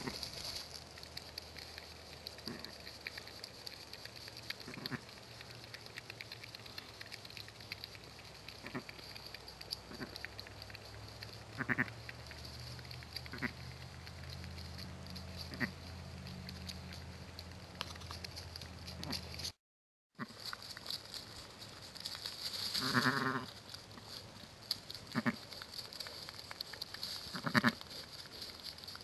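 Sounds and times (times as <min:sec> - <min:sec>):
sheep and lamb bleating: 0:04.7 - 0:05.0, 0:08.6 - 0:08.8, 0:11.6 - 0:11.9, 0:13.3 - 0:13.6, 0:15.5 - 0:15.8, 0:22.8 - 0:23.5, 0:25.1 - 0:25.4, 0:27.3 - 0:27.8.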